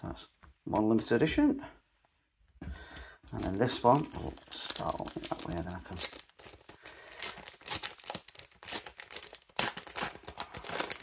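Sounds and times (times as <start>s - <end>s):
plastic wrapper crinkling and tearing: 3.3s - 11.0s.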